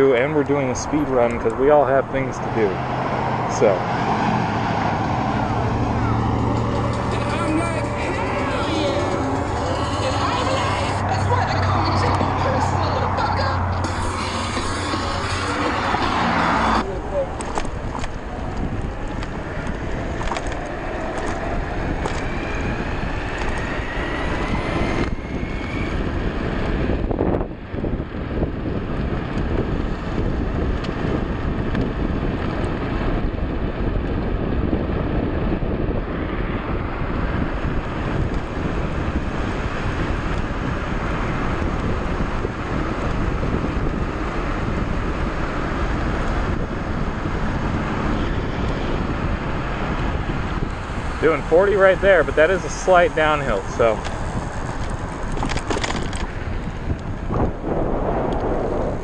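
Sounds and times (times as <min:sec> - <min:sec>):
wind rushing over microphone: 0:00.0 - 0:59.0
electric bike motor whine: 0:18.5 - 0:52.0.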